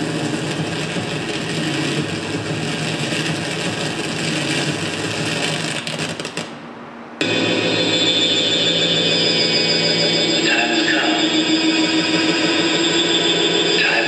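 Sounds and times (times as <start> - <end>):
electronic noise music: 7.2 - 14.0.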